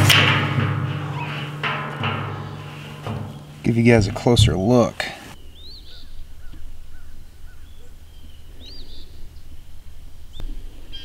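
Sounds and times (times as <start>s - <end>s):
bird chirping: 3.4s - 9.5s.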